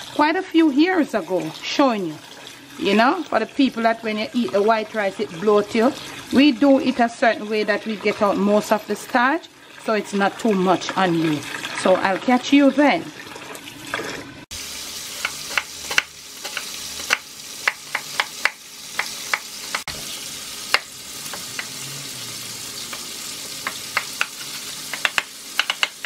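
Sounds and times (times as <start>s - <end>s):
tap water running into bowl: 0.0s - 26.0s
knife chopping on wooden board: 15.2s - 19.9s, 23.6s - 26.0s.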